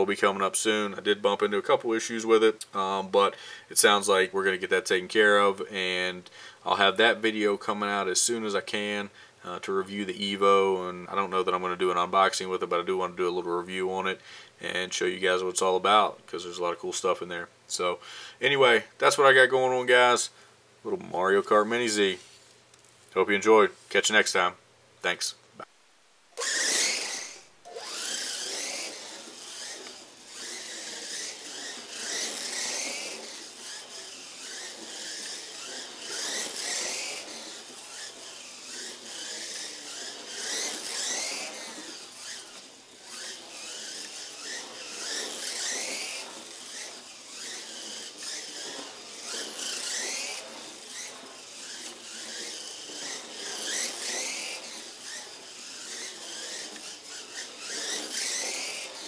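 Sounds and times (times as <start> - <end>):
rc car motor whining: 26.3 - 59.0.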